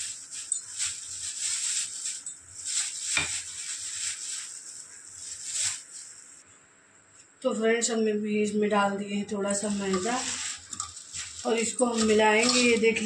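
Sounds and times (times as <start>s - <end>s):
spoon scraping and tapping in flour: 0.0s - 3.9s, 9.5s - 13.0s
steady high hiss: 0.0s - 6.4s.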